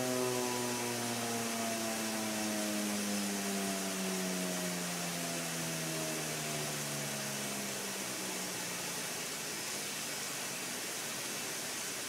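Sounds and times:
warning siren wailing: 0.0 - 9.0.

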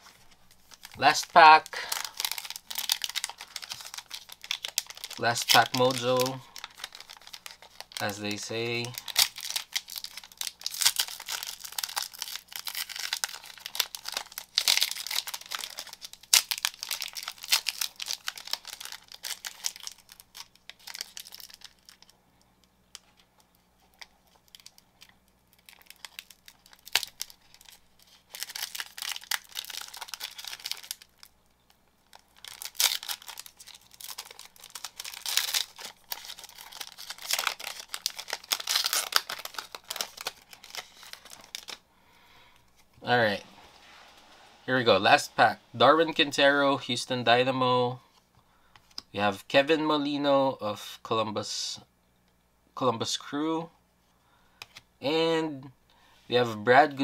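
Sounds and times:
card pack wrapper crinkling: 0.0 - 22.2, 22.9 - 31.3, 32.0 - 41.8.

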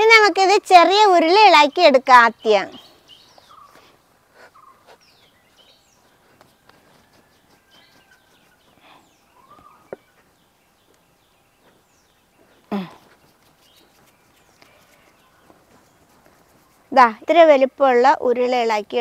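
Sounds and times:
faint bird calls: 2.4 - 16.9.

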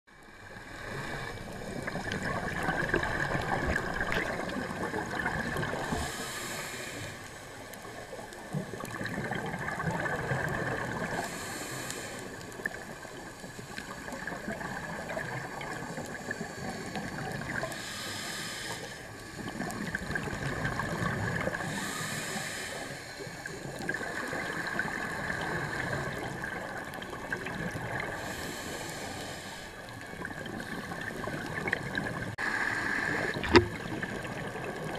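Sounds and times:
exhaled bubbles gurgling: 0.4 - 6.8, 7.5 - 34.9
diver inhaling through regulator: 5.7 - 7.5, 11.1 - 12.5, 16.2 - 20.0, 21.4 - 26.4, 28.0 - 30.0, 32.4 - 33.8.

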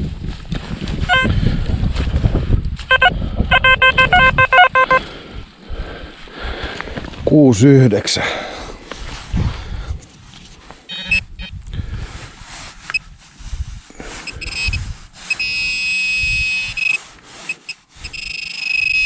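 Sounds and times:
soil rustling and scraping: 0.0 - 2.9, 5.0 - 7.8, 8.7 - 19.0
metal detector electronic buzz: 1.1 - 1.3, 2.9 - 5.0, 10.9 - 11.5, 14.3 - 19.0.

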